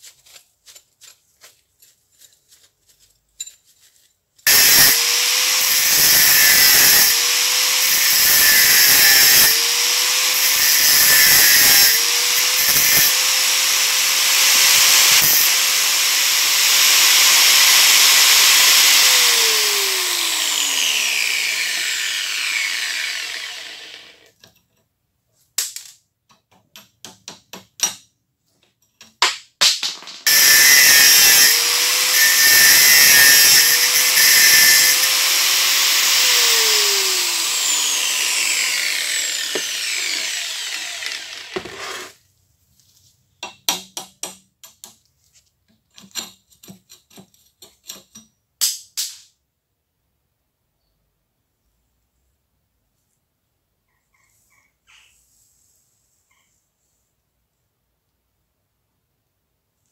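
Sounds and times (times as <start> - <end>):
grinder spinning down: 4.5 - 24.3, 30.3 - 42.2
angle grinder cutting metal: 4.5 - 24.4, 30.2 - 42.2.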